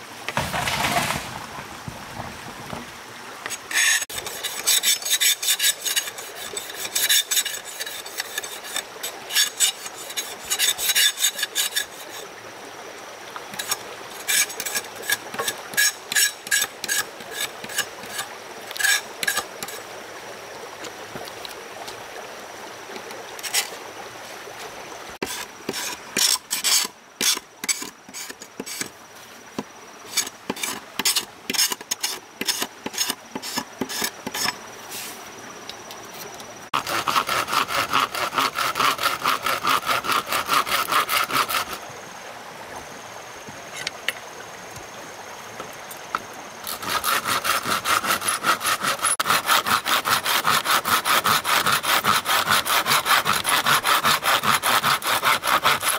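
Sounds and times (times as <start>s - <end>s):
hand tool scraping: 3.4s - 12.3s, 13.5s - 19.8s, 23.4s - 23.8s, 25.2s - 29.0s, 29.6s - 35.2s, 36.1s - 41.8s, 46.6s - 55.9s.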